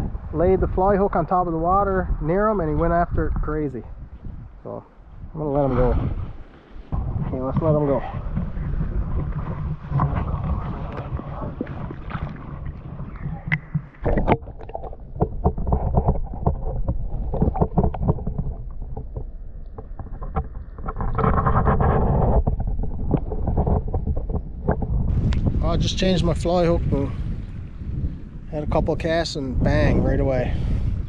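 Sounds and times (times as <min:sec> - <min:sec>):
muffled underwater stream flow: 0:00.0 - 0:31.0
wind rumbling on microphone: 0:00.0 - 0:31.0
small underwater clicks and knocks: 0:07.0 - 0:25.5.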